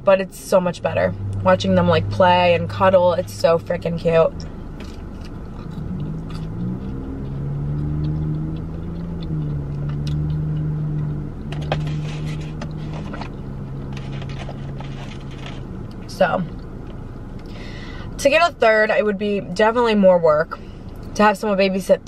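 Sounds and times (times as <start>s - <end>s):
chewing clicks: 4.8s - 11.2s.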